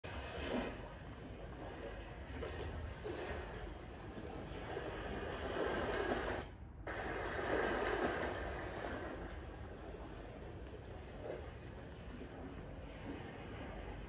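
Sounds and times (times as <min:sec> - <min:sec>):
ocean waves washing in: 0:00.1 - 0:14.0.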